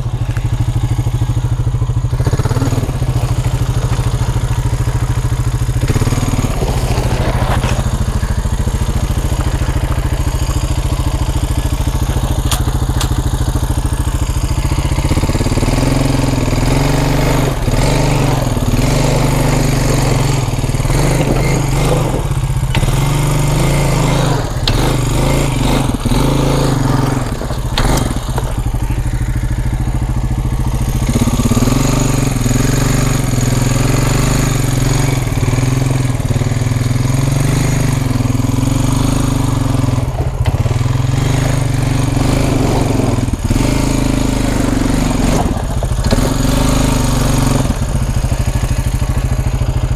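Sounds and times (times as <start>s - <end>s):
vehicle engine running: 0.0s - 49.9s
knocks and rattles: 20.6s - 25.2s, 26.6s - 32.0s.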